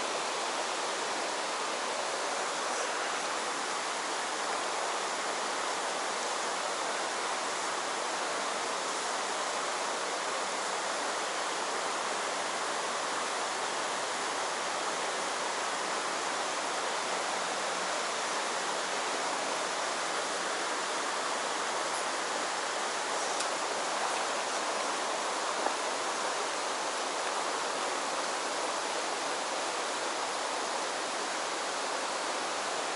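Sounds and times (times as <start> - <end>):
stream rushing over rocks: 0.0 - 32.9.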